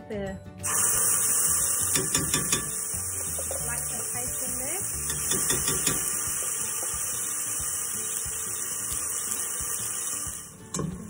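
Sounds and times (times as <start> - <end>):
paste sizzling in hot oil: 0.6 - 11.0
spoon scraping and knocking pot: 1.9 - 3.8, 5.0 - 6.4.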